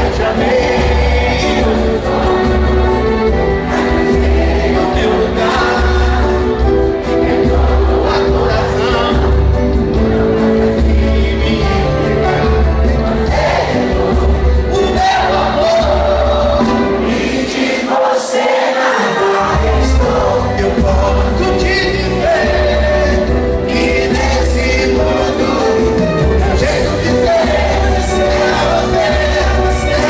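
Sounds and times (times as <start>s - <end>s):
live samba band playing: 0.0s - 30.0s
person singing: 0.0s - 30.0s.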